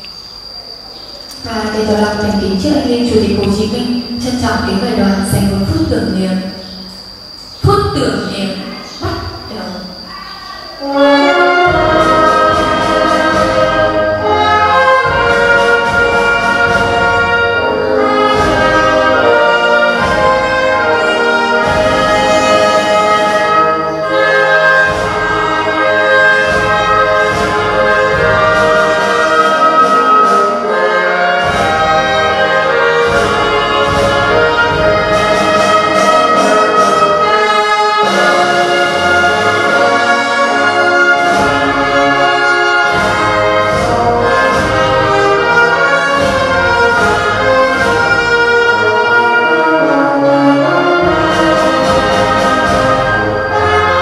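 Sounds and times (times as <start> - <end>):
orchestral brass music: 10.8 - 54.0.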